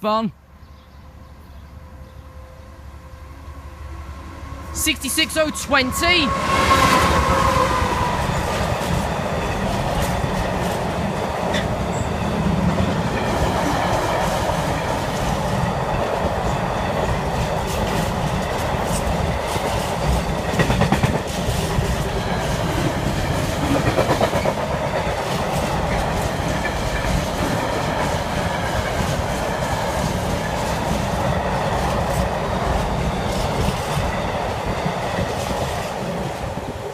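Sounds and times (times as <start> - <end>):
diesel locomotive passing: 0.4 - 36.9
train wheels clattering over rail joints: 16.9 - 36.0.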